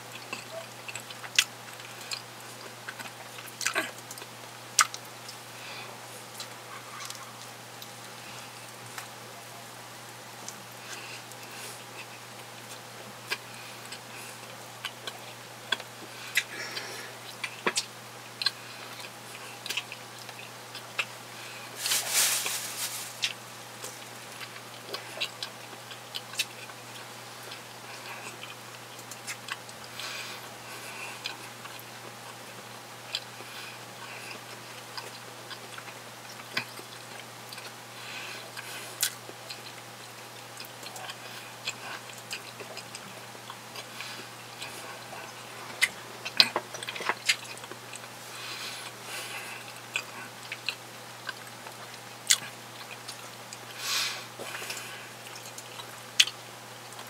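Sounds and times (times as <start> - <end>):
chewing with wet mouth clicks: 0.1 - 5.4, 17.3 - 21.1, 23.2 - 29.9, 34.3 - 37.8, 38.5 - 48.2, 48.8 - 53.8, 54.5 - 57.0.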